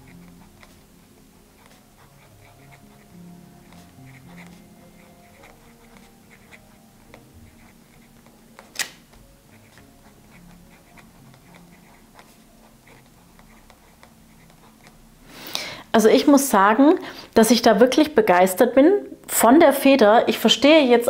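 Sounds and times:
fountain pen scratching on paper: 0.0 - 8.7, 9.4 - 15.0
sharp click: 8.7 - 9.0.

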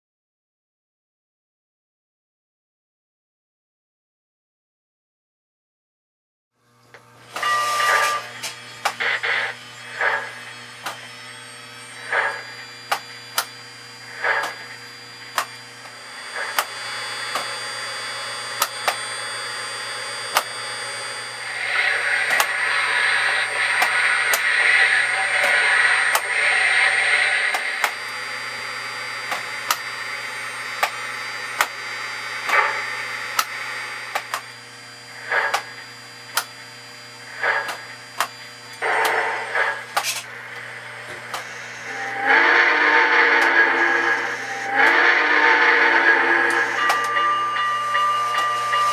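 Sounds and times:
steady low hum: 6.8 - 48.9
steam hiss: 8.9 - 11.2, 21.4 - 31.8, 41.8 - 48.9.

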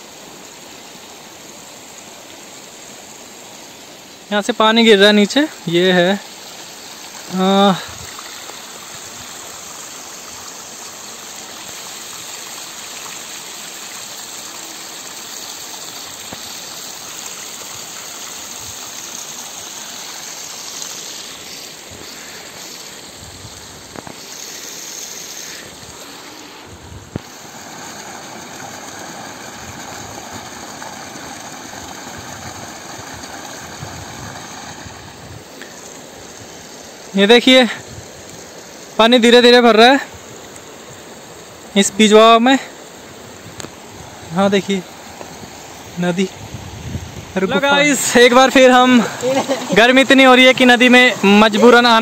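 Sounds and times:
water pouring down a wall: 5.2 - 26.2, 27.2 - 38.6, 47.4 - 52.0.

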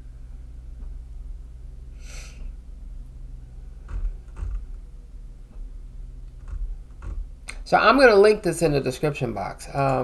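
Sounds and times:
low room tone hum: 0.0 - 10.0
soft knocks: 6.4 - 7.3.

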